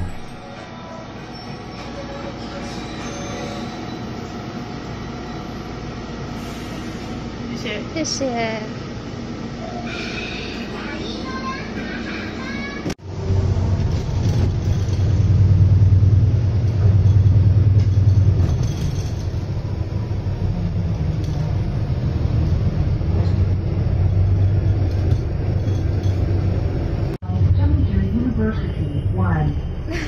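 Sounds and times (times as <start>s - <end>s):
bus engine hum: 4.1s - 30.0s
road rumble: 12.9s - 29.8s.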